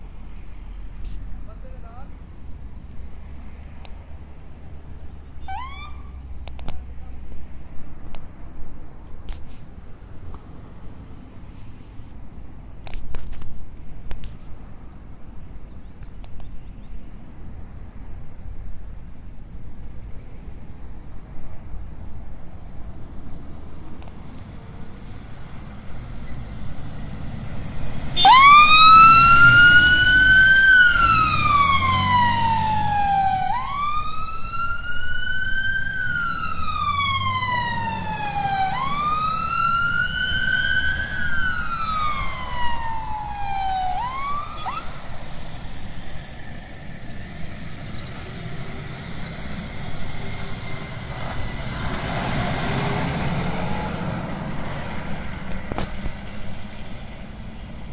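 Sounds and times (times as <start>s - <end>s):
vehicle engine and road noise: 0.0s - 57.9s
fire engine siren wailing: 5.4s - 6.2s, 27.9s - 45.3s, 49.0s - 55.0s.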